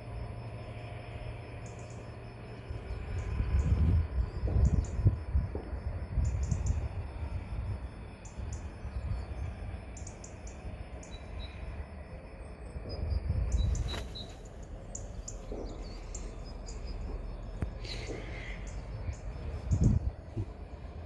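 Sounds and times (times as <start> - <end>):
low uneven rumble: 0.0 - 21.0
small birds chirping: 1.5 - 2.2, 6.2 - 7.0, 8.2 - 11.8, 12.4 - 20.9.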